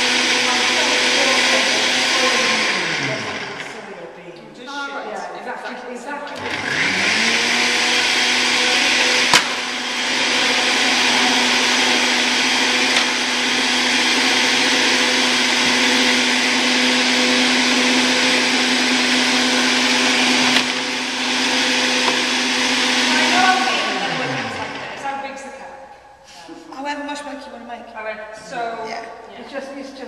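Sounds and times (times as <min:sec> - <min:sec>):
blender running: 0:00.0 - 0:03.9, 0:06.3 - 0:25.4.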